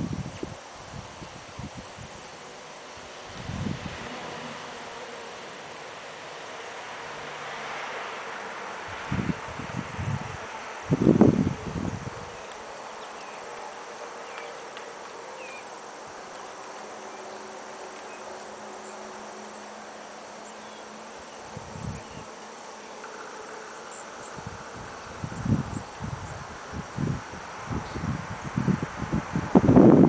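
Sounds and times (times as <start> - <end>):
crickets trilling: 0.0 - 30.0
low rumble on microphone: 24.3 - 30.0.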